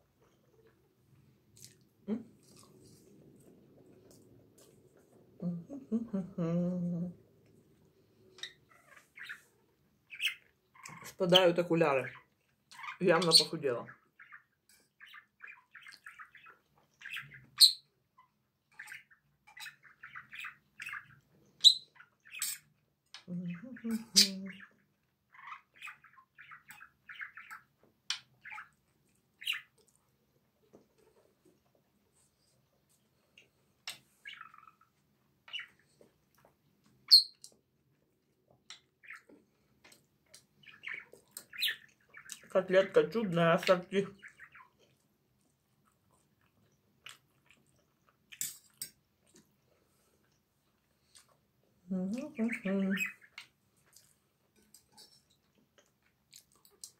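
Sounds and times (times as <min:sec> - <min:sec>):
person chewing with lip smacks: 0:01.5 - 0:05.1, 0:55.4 - 0:56.9.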